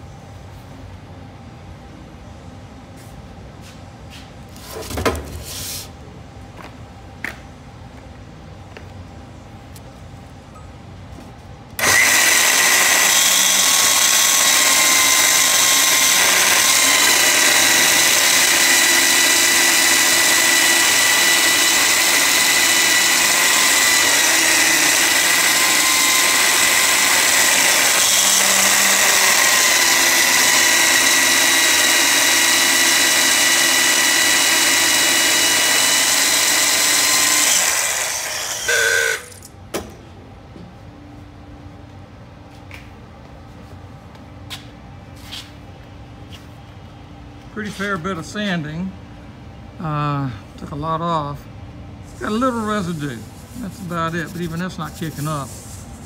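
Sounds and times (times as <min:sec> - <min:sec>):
electric belt sander whining: 0:11.8 - 0:39.4.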